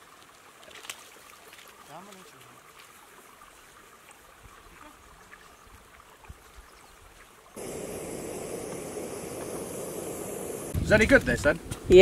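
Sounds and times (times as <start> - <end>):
faint stream trickling: 0.0 - 10.8
gas stove burner hissing: 7.6 - 11.2.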